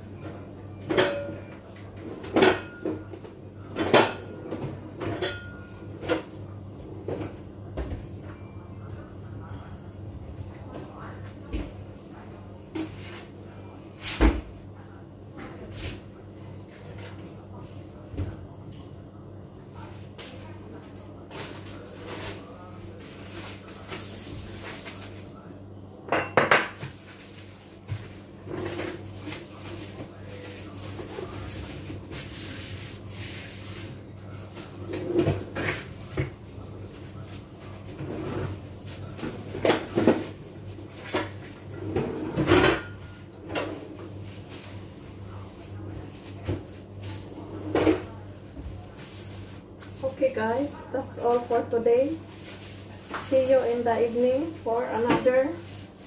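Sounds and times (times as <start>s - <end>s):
dishes and pots clattering: 0.2s - 6.4s, 26.1s - 30.1s, 41.0s - 44.4s
kitchenware clinks and knocks: 0.8s - 1.6s, 2.2s - 6.3s, 26.1s - 27.0s.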